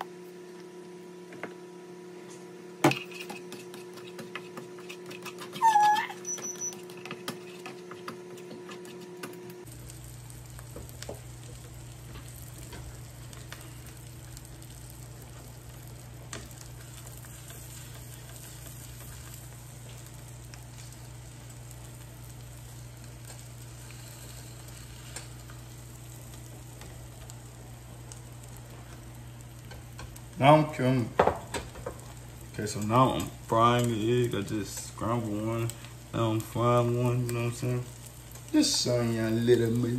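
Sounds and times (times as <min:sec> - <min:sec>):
spatula scraping pan: 0:02.9 - 0:09.3
eggs sizzling in skillet: 0:06.3 - 0:39.9
steady low hum: 0:06.8 - 0:39.9.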